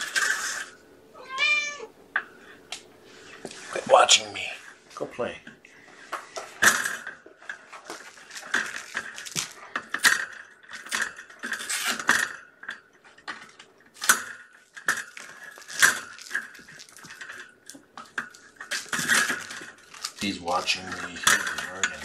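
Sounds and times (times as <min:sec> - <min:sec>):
plastic ball toy clattering: 0:06.6 - 0:12.4, 0:13.4 - 0:22.0.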